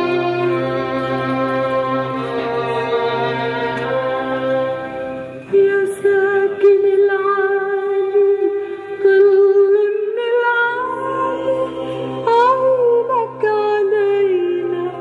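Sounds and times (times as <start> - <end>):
sustained chords: 0.0 - 6.9.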